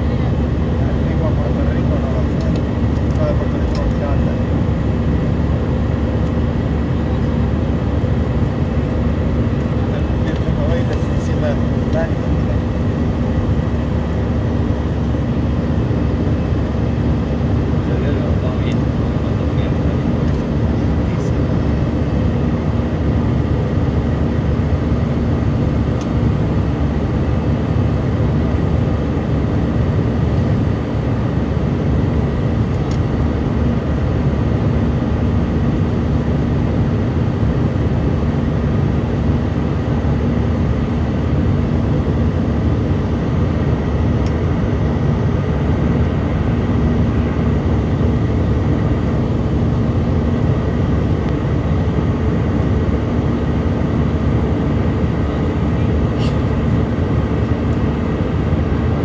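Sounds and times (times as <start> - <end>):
jet engines droning: 0.0 - 59.0
steady low hum: 0.0 - 59.0
rush of air in cabin: 30.2 - 30.8, 55.3 - 59.0.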